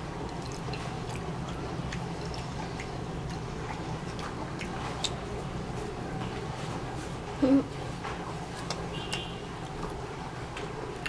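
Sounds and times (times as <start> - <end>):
mouth chewing: 0.2 - 5.3.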